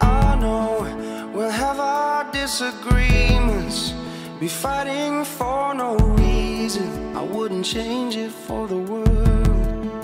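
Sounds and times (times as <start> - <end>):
melody over deep bass: 0.0 - 2.2, 2.9 - 7.8, 8.6 - 10.0.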